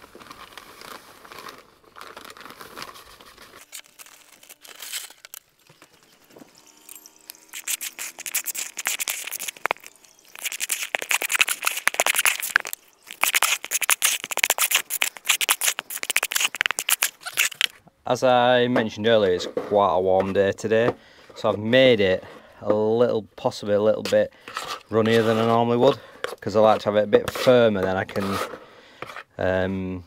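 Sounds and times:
filler mixing in a bucket: 0:00.0 - 0:17.8, 0:18.8 - 0:29.7
plastic bag rustling: 0:00.0 - 0:17.8.

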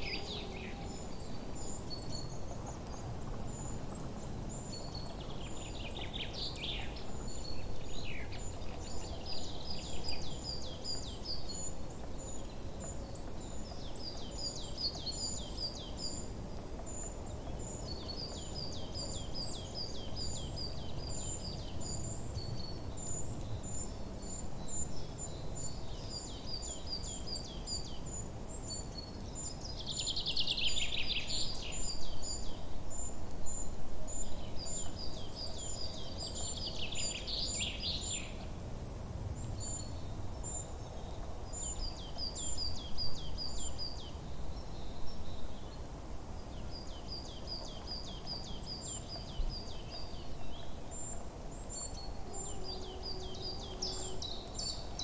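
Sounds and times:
birds chirping: 0:39.4 - 0:55.0.

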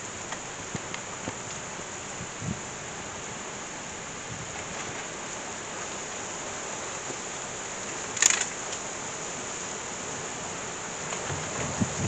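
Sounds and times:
heavy rain hissing: 0:00.0 - 0:12.0
sharp click: 0:08.2 - 0:08.6.

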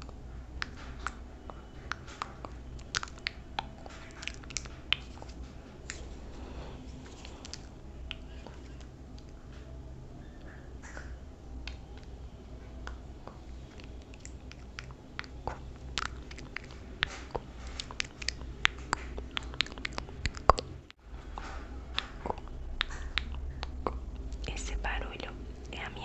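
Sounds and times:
sharp crisp clicks and crackles: 0:00.0 - 0:09.7
steady low hum: 0:00.0 - 0:26.0.

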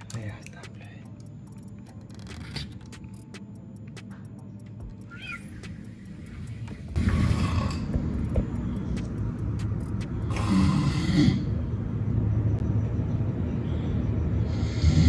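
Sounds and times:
steady low rumble: 0:00.0 - 0:14.6
man snoring: 0:07.0 - 0:07.9, 0:10.2 - 0:11.5, 0:14.5 - 0:15.0.

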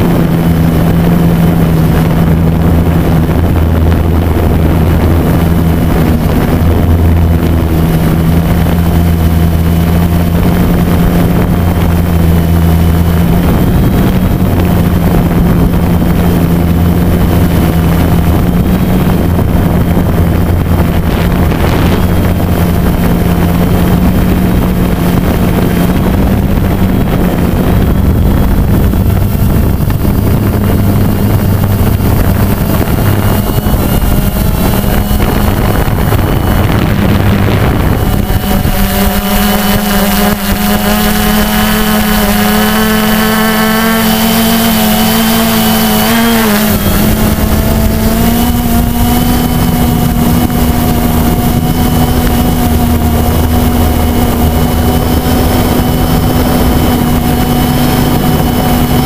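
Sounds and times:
drone motors humming: 0:00.0 - 0:59.0
wind noise on microphone: 0:00.0 - 0:59.0.

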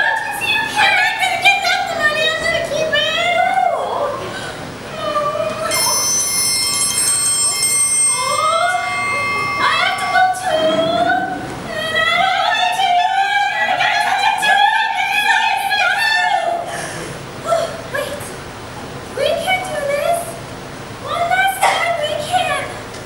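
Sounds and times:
women singing mock-operatic: 0:00.0 - 0:04.2, 0:04.9 - 0:06.1, 0:09.6 - 0:16.7
high steady tone: 0:05.6 - 0:13.2.

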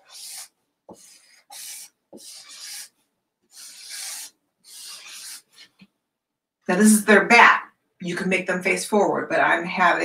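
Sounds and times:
marker scratching on paper: 0:00.0 - 0:05.9.

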